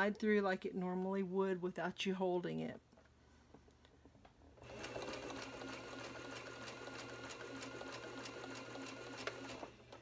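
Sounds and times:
sewing machine running: 4.6 - 10.0.

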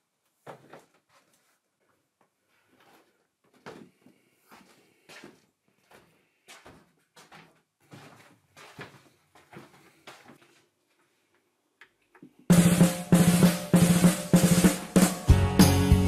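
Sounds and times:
footsteps on wooden stairs: 2.8 - 10.6
music with heavy drum beat: 12.5 - 16.0.

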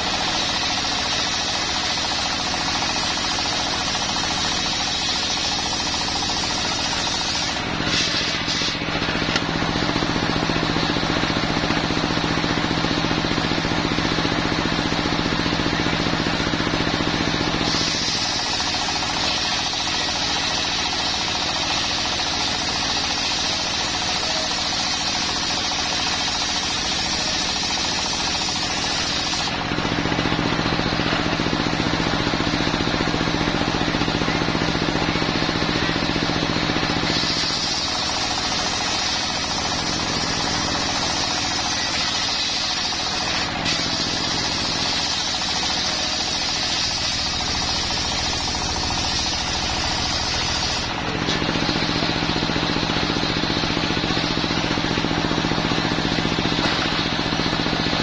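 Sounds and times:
saw blade cutting wood: 0.0 - 10.2, 17.2 - 29.8, 36.8 - 52.1
diesel engine drone: 0.0 - 58.0.

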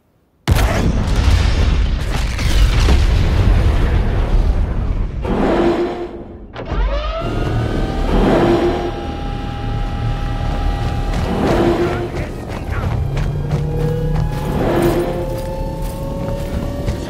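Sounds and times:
explosion rumble: 0.5 - 6.5
rising whine: 5.2 - 17.0.

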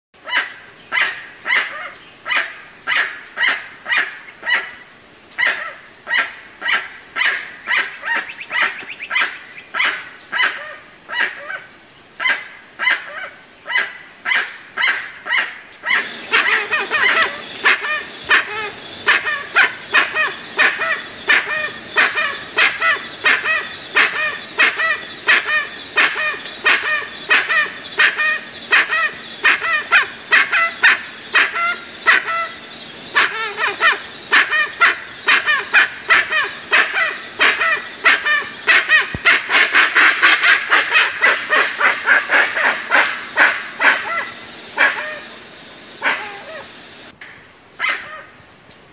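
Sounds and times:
birds calling repeatedly: 0.2 - 47.2
hiss: 15.9 - 47.2.

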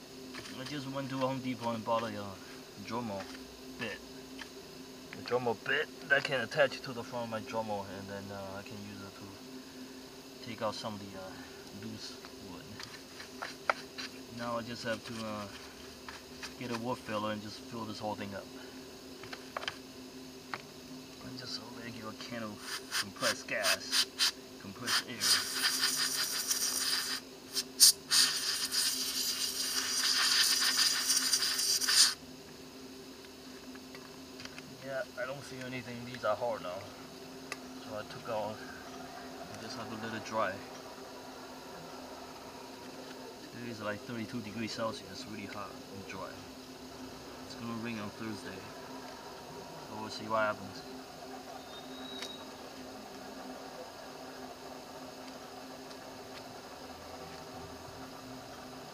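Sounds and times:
faint hum and hiss: 0.0 - 58.9
compressed air spraying hiss: 12.9 - 14.3, 22.4 - 32.2.

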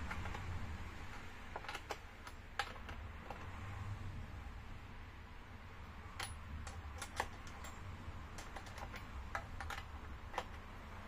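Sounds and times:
saw chain clicking and rattling: 6.2 - 11.0.

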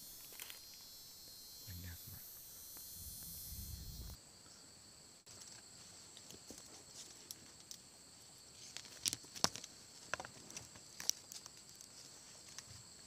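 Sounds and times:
high buzz of insects: 0.0 - 5.2.

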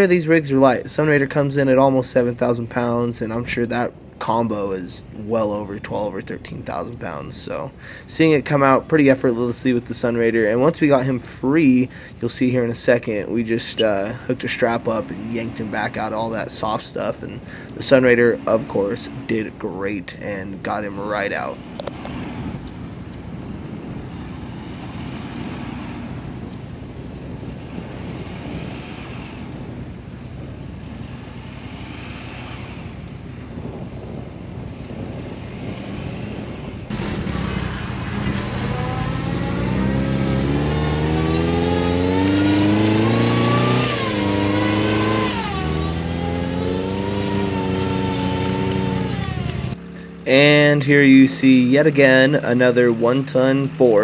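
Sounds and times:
vehicle engines under load: 0.0 - 54.0
engine revving hard: 31.0 - 33.0, 35.0 - 54.0.

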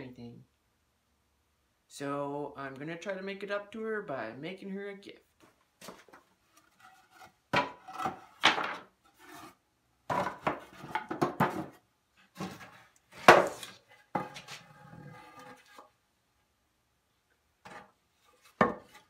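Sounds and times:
wooden boards knocking and scraping: 5.8 - 6.2, 6.8 - 15.9, 17.6 - 19.0.

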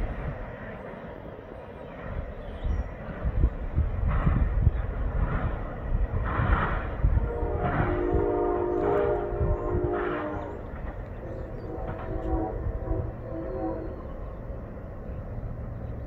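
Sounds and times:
locomotive air horn chord: 7.2 - 14.2.

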